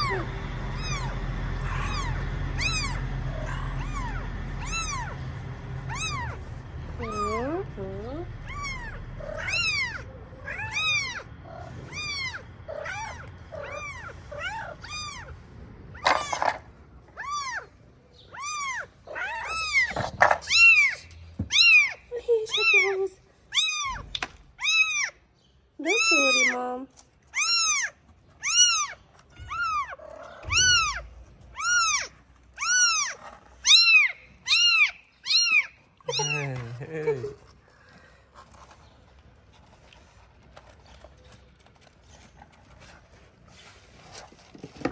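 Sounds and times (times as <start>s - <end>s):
kittens mewing: 0.0s - 38.7s.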